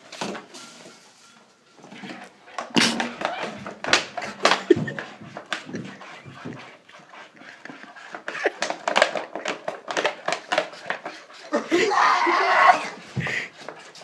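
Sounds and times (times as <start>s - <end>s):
heavy panting breaths: 4.0s - 8.8s, 13.0s - 14.0s
breathy outburst: 11.5s - 13.6s.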